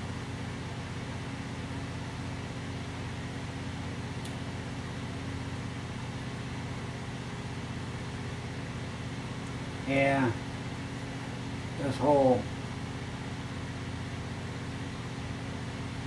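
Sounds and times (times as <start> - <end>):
low mechanical hum with hiss: 0.0 - 16.0
faint click: 4.2 - 4.4.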